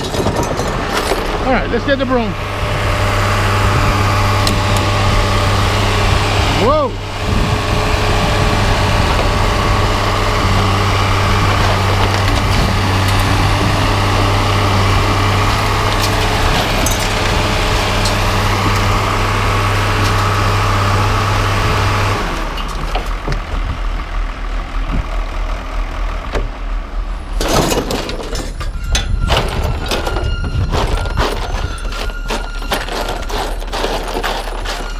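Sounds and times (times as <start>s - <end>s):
engine idling: 0.0s - 34.9s
broom sweeping truck bed: 31.1s - 34.9s.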